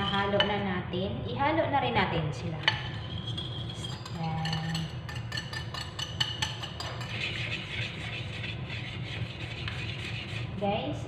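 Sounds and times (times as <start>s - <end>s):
whisk clinking against ceramic bowl: 0.0s - 0.6s, 2.6s - 10.5s
whisking batter swishing: 2.8s - 10.8s.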